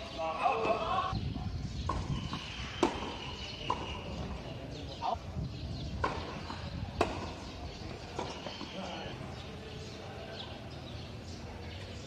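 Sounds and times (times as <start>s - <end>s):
tennis ball hitting rackets: 1.8s - 4.0s, 6.0s - 7.4s.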